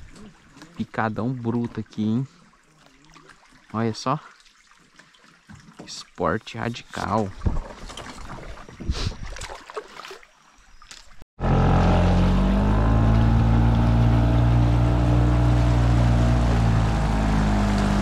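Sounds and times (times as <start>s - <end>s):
water rushing along hull: 0.0s - 10.3s, 11.4s - 18.0s
faint paddling: 0.0s - 11.2s, 12.6s - 18.0s
outboard motor running: 11.4s - 18.0s.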